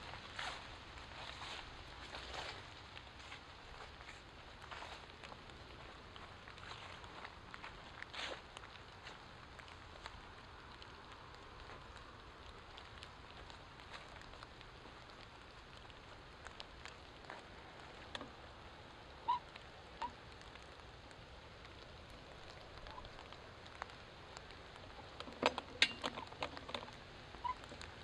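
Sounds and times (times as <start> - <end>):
clicks and crackles: 0.0 - 28.0
steady faint hiss: 0.0 - 28.0
light ticks: 2.1 - 18.4.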